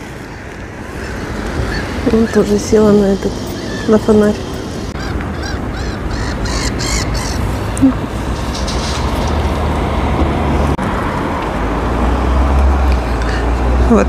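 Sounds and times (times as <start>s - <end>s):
gulls calling: 0.0s - 9.5s
low rumble of street traffic: 0.0s - 14.0s.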